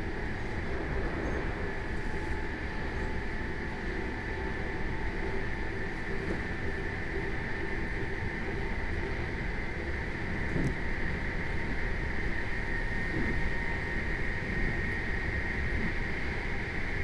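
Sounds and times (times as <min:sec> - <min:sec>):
train rolling rumble: 0:00.0 - 0:17.0
train whining tones: 0:00.0 - 0:17.0.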